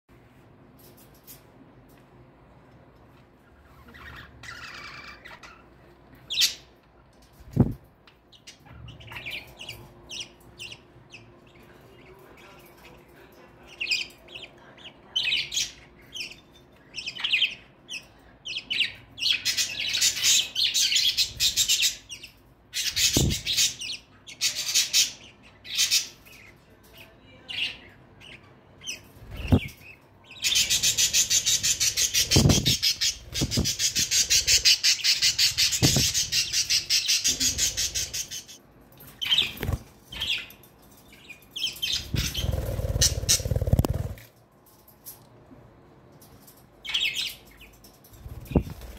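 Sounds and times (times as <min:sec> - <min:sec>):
budgerigars chattering and chirping: 0:03.6 - 0:05.7, 0:17.0 - 0:26.6, 0:27.5 - 0:38.6, 0:41.6 - 0:44.2.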